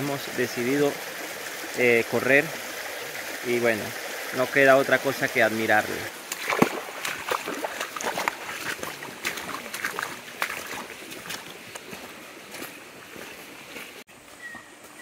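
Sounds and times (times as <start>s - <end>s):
stream babbling over stones: 0.0s - 14.0s
footsteps on rocky bank: 6.2s - 15.0s.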